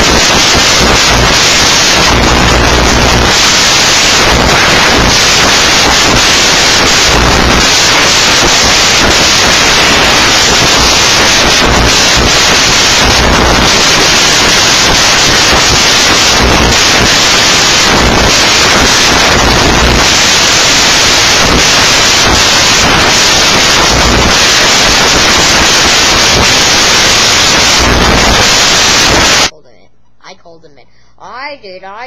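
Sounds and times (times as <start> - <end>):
static-like hiss: 0.0 - 32.0.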